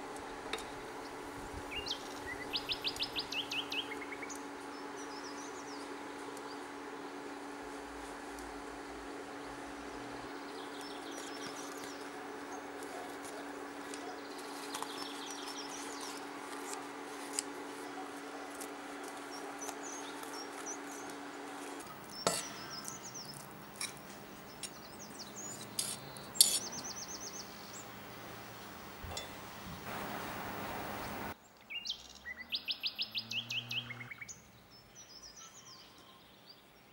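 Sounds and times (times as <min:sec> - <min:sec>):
steady low hum: 0:00.1 - 0:31.4
small birds chirping: 0:01.0 - 0:07.6, 0:09.3 - 0:16.7, 0:17.4 - 0:36.9
metal spoon clinking on pan: 0:22.2 - 0:22.7.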